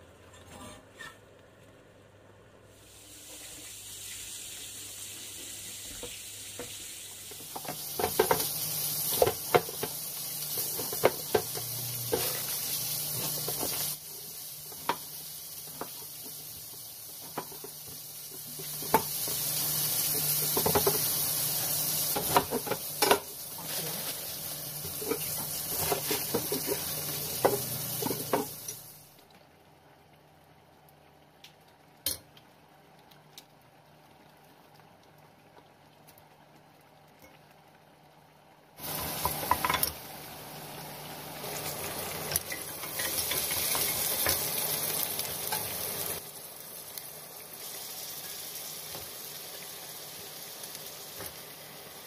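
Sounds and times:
curry sizzling in a wok: 2.7s - 29.2s, 38.3s - 52.0s
spatula scraping and knocking pan: 7.4s - 12.5s, 24.8s - 28.7s.

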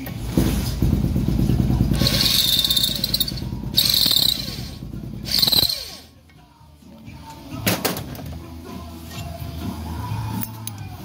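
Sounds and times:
valve seat grinder grinding: 2.0s - 6.0s.

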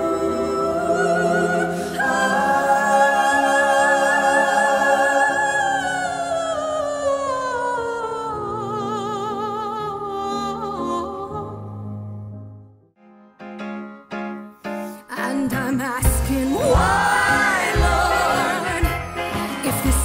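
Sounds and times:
woman singing with vibrato: 15.1s - 20.0s.

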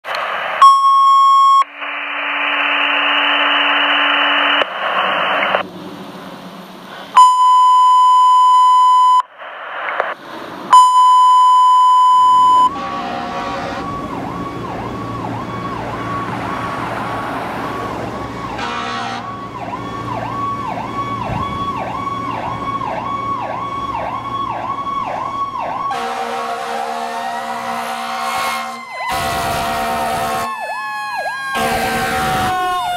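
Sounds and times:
radio static: 0.0s - 0.7s, 1.4s - 5.6s, 9.3s - 10.2s
radio alert beeps: 0.6s - 5.6s, 7.2s - 9.4s, 10.0s - 12.8s
low engine hum: 5.0s - 8.1s
fire engine siren yelping: 10.7s - 32.9s.

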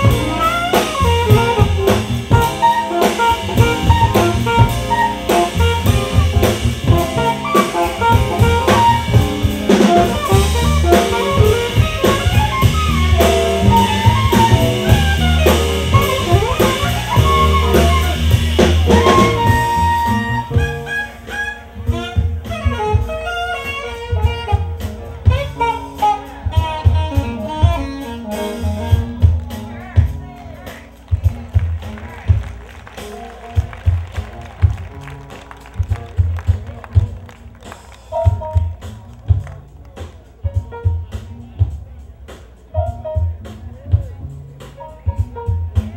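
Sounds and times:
alto saxophone soloing: 0.0s - 39.7s
bass: 0.0s - 45.9s
drum kit: 0.0s - 45.9s
keyboard: 0.0s - 45.9s.

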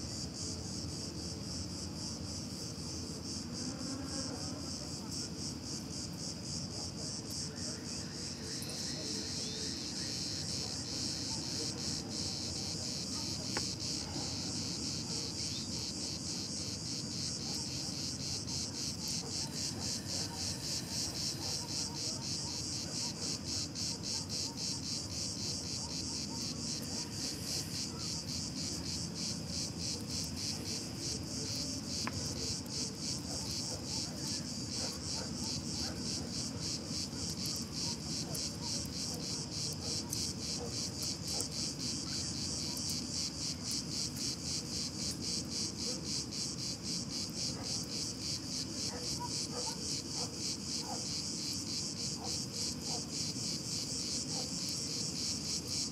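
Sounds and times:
insect chorus pulsing: 0.0s - 55.9s.

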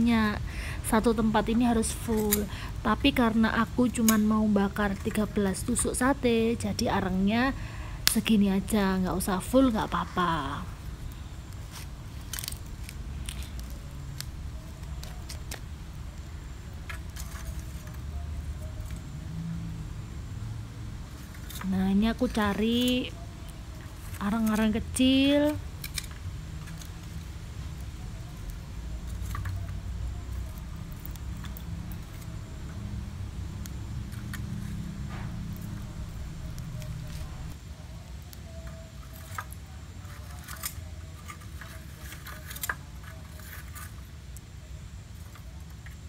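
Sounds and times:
steady low rumble: 0.0s - 38.4s
tongs and charcoal clinking in grill: 9.2s - 19.1s, 21.0s - 44.5s.

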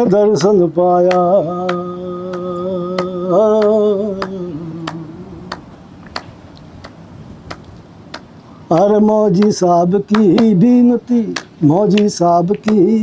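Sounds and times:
man singing a held note: 0.0s - 5.6s
sharp clicking beat: 0.4s - 13.0s.

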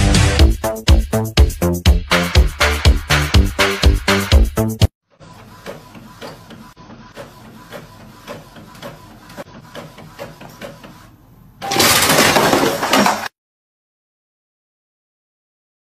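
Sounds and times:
printer mechanism ticking: 5.2s - 11.0s
loud crashing noise: 11.6s - 13.3s.

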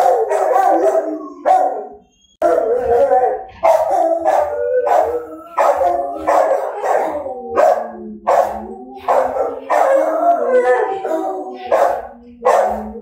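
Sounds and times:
dogs barking and howling: 0.0s - 13.0s
long low dog howl: 3.9s - 13.0s.

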